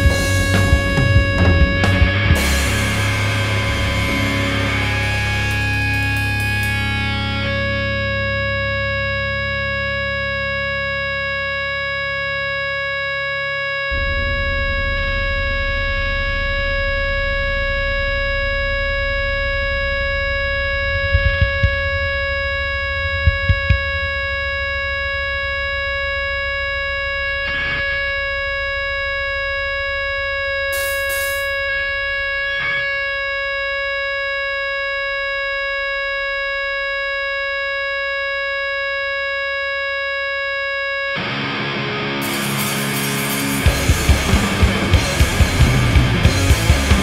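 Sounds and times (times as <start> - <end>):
full band crashing in: 0.0 - 7.0, 13.9 - 25.4, 42.2 - 47.0
low amp rumble: 0.0 - 9.8, 13.6 - 30.8, 42.6 - 47.0
distorted electric guitar droning: 0.0 - 47.0.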